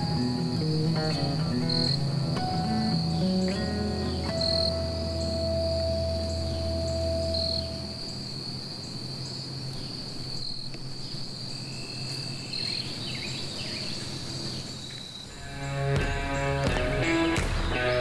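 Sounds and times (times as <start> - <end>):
high insect trilling: 0.0 - 16.5.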